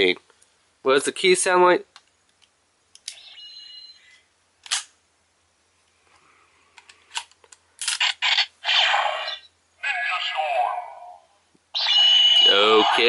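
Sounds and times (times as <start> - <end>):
high electronic tone: 11.8 - 13.0.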